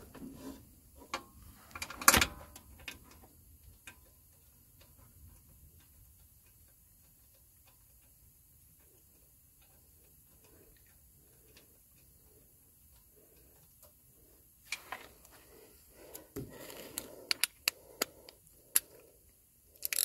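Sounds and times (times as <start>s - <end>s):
light metallic clicks and taps: 1.1s - 14.0s.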